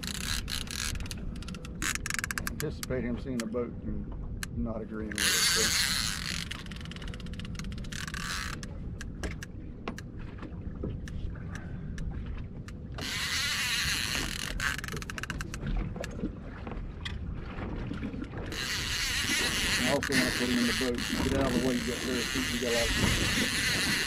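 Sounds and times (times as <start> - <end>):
sharp clicks and knocks: 0.0 - 3.6, 5.2 - 10.1, 12.6 - 16.2
low rumble of wind and water: 0.0 - 24.0.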